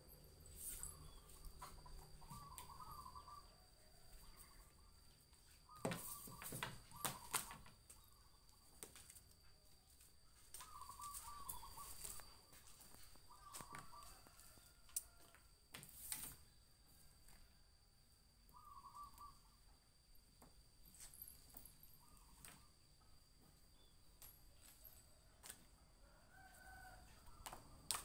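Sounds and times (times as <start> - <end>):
bird warbling calls: 18.5 - 19.4.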